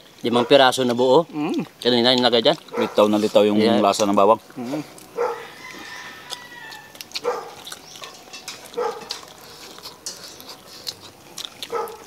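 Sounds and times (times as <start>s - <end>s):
people eating with hands: 0.0s - 12.0s
dog barking: 0.3s - 0.6s, 2.7s - 3.1s, 5.2s - 5.5s, 7.2s - 7.7s, 8.7s - 9.2s, 11.7s - 12.0s.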